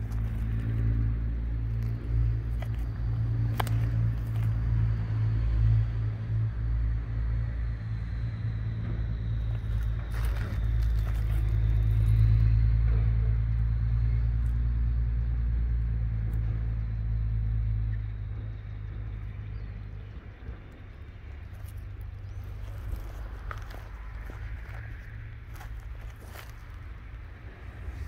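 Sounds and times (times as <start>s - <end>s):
vehicle engine running: 0.0s - 28.0s.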